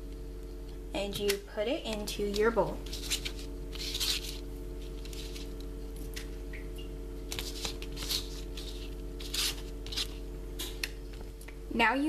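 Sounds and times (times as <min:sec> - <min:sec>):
steady low hum: 0:00.0 - 0:12.0
fingers scraping paper plate: 0:02.2 - 0:05.5, 0:07.3 - 0:10.2.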